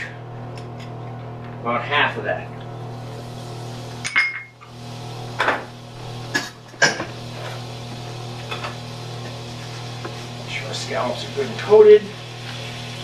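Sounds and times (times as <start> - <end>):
fan humming: 0.0 - 13.0.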